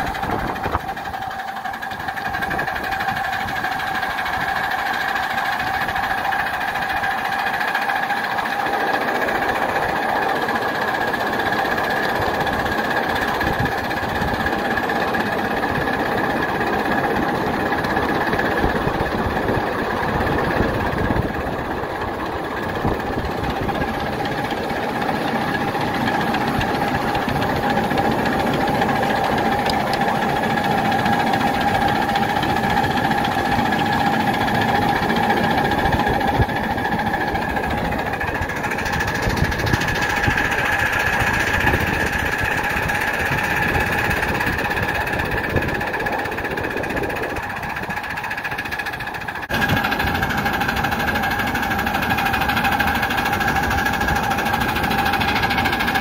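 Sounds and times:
constant ringing tone: 0:00.0 - 0:56.0
miniature locomotive wheels clattering: 0:00.0 - 0:56.0.

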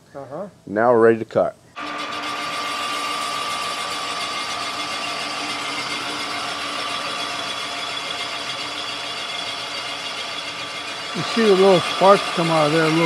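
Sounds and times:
boring machine cutting metal: 0:01.8 - 0:13.0.

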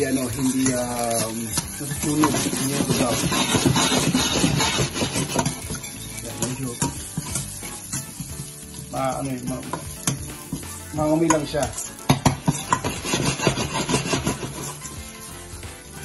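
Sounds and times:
metal spoon scraping pot: 0:00.0 - 0:08.3, 0:11.3 - 0:15.1
garlic sizzling in oil: 0:00.0 - 0:16.0.

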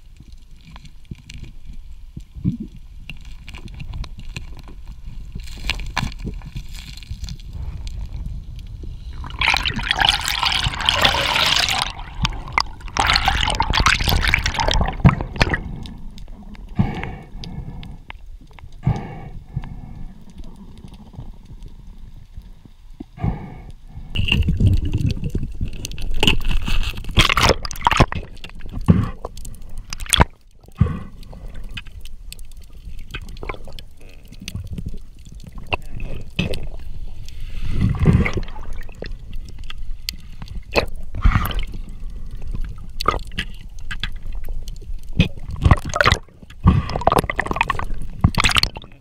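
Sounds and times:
underwater gurgling and bubbles: 0:00.0 - 0:49.0
low underwater rumble: 0:01.5 - 0:23.2.

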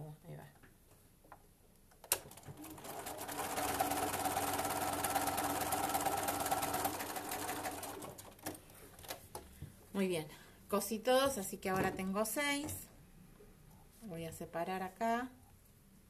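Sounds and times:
sewing machine stitching: 0:02.1 - 0:08.6.

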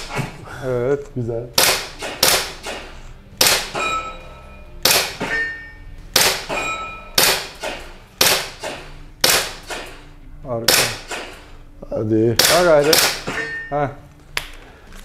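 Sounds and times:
airsoft pistol shots: 0:01.6 - 0:03.8, 0:04.8 - 0:05.3, 0:06.1 - 0:06.5, 0:07.2 - 0:10.0, 0:10.7 - 0:11.4, 0:12.4 - 0:13.3.

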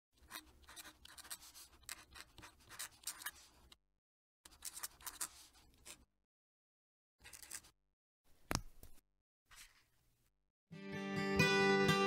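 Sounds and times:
pen nib scratching on paper: 0:00.2 - 0:03.8, 0:04.5 - 0:06.1.

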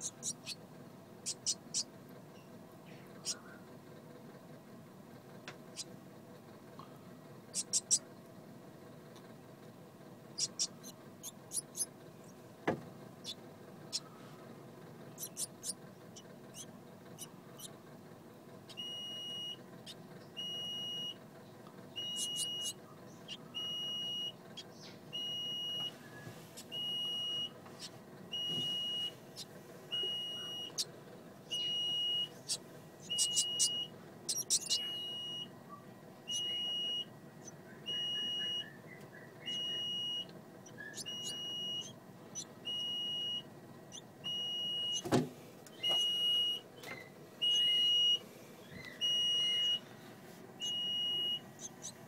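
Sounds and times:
high-pitched electronic beeps: 0:33.1 - 0:35.5.

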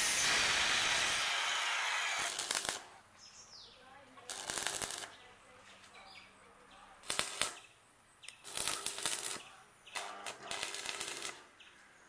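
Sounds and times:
electric arc welding crackling: 0:00.0 - 0:03.0, 0:04.3 - 0:05.2, 0:07.0 - 0:07.6, 0:08.4 - 0:11.5.

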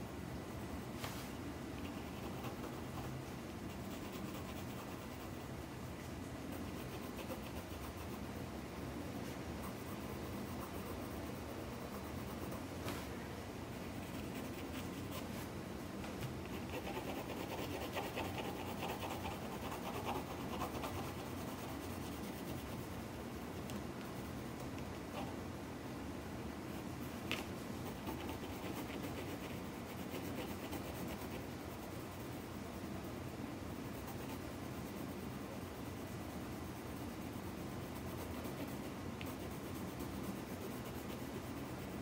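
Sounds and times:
low steady hum: 0:00.0 - 0:42.0
pencil scratching on paper: 0:01.8 - 0:05.6, 0:06.5 - 0:08.3, 0:09.6 - 0:12.7, 0:13.9 - 0:15.4, 0:16.4 - 0:23.0, 0:27.4 - 0:32.9, 0:33.8 - 0:42.0.

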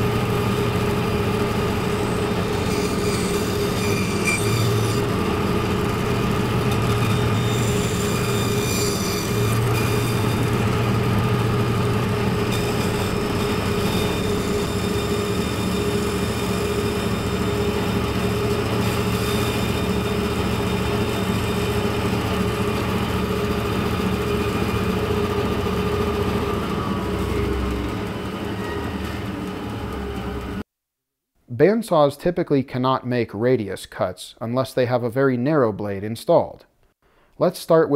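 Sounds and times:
bandsaw cutting plywood: 0:00.0 - 0:29.4.

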